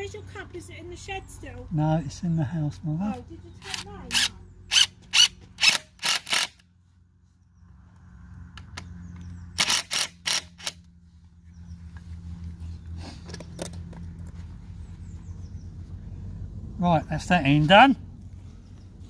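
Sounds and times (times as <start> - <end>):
low background rumble: 5.4 - 19.0
cordless drill bursts: 9.6 - 10.8.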